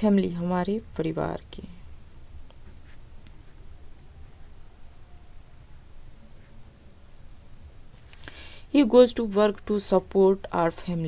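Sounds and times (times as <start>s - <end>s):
cricket chirping: 0.0s - 11.0s
pen scratching on paper: 2.6s - 3.5s.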